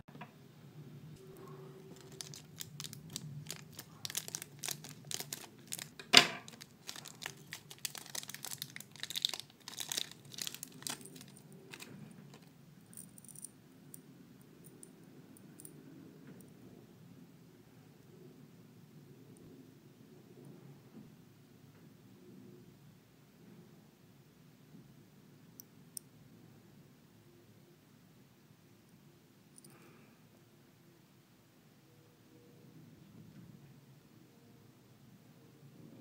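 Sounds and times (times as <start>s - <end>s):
plastic bag crinkling and tearing: 1.8s - 12.5s.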